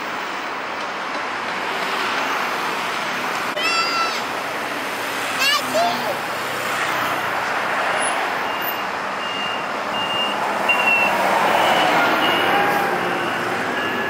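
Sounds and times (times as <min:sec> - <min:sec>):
bus passing: 0:00.0 - 0:14.0
road traffic passing: 0:00.0 - 0:14.0
high electronic warning beep: 0:08.5 - 0:12.6, 0:13.2 - 0:14.0.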